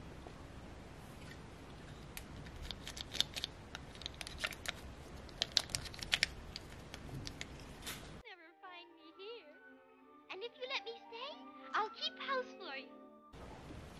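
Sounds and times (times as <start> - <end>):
plastic doll clicks and rattles: 2.2 - 7.6.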